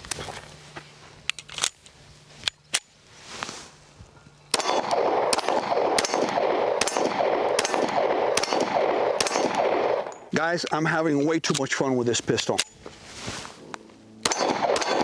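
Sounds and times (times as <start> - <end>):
pistol gunshots: 4.5 - 10.4, 14.2 - 15.0.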